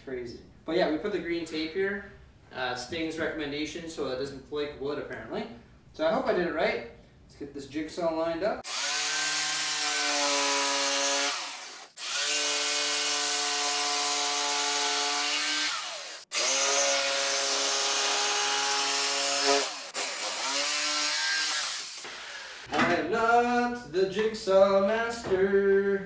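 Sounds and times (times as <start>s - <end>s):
jigsaw motor whining: 8.6s - 22.7s.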